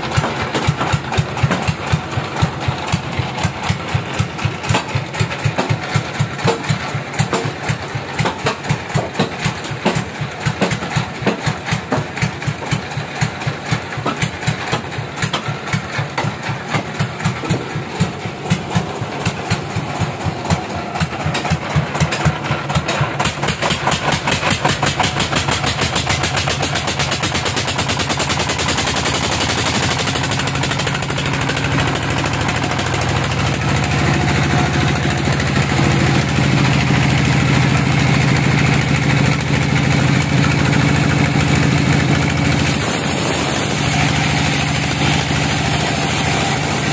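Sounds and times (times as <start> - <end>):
band sawmill chugging: 0.0 - 46.9
hiss: 42.5 - 46.9.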